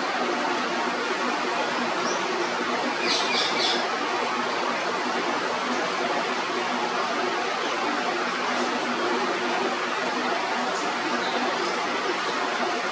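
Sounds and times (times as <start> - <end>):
rain falling: 0.0 - 12.9.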